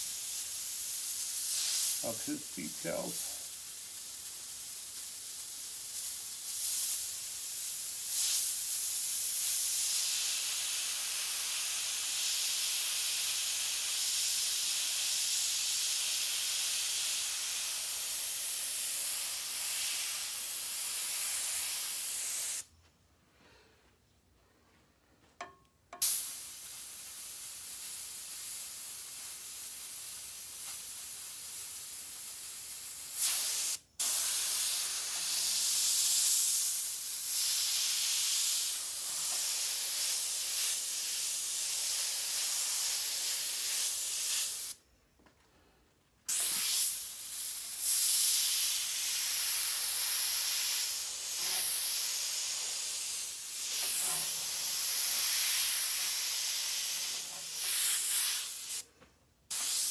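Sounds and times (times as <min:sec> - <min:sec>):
airbrush hissing: 0:00.0 - 0:22.7, 0:26.0 - 0:44.8, 0:46.3 - 0:58.9, 0:59.5 - 0:59.9.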